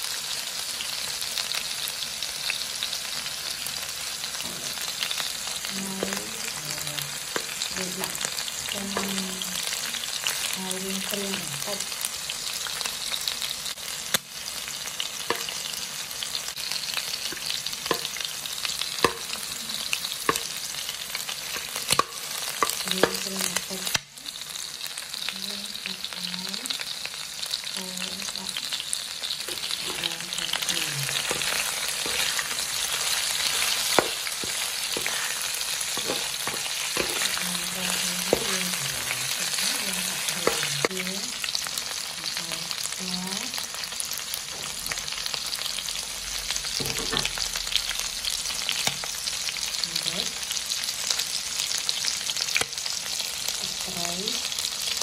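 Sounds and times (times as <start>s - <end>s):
food sizzling in hot oil: 0.0s - 55.0s
metal spatula scraping pan: 29.5s - 38.5s.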